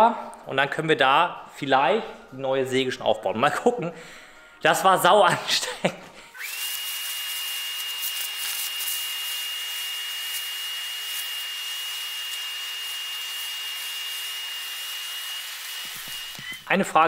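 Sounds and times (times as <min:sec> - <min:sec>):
vacuum motor whine: 0:06.4 - 0:16.7.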